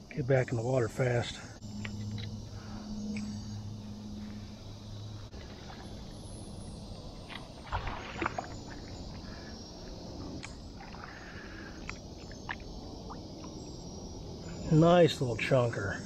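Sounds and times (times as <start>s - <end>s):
outdoor background hiss: 0.0s - 16.0s
water sloshing and splashing: 5.2s - 13.8s.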